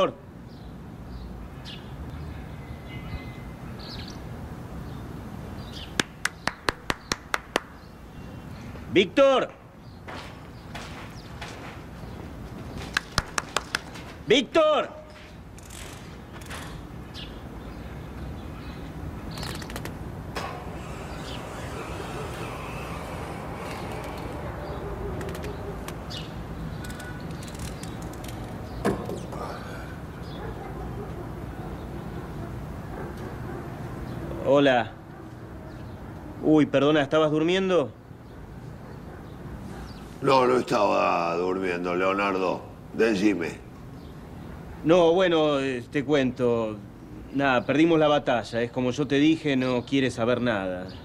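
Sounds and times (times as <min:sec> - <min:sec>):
low traffic rumble: 0:00.0 - 0:51.0
faint bird chirps: 0:00.5 - 0:04.2
sharp taps: 0:06.0 - 0:07.8, 0:12.8 - 0:14.1.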